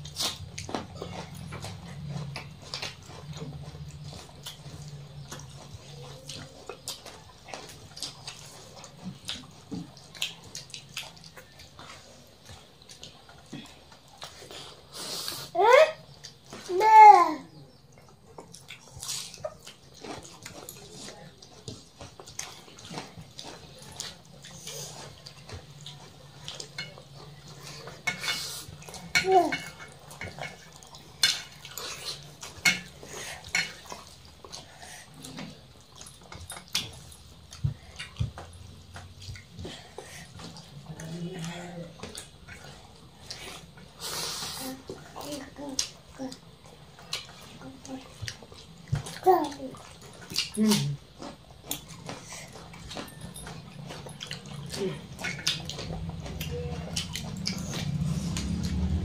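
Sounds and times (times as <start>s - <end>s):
wet eating mouth noises: 17.8s - 59.0s.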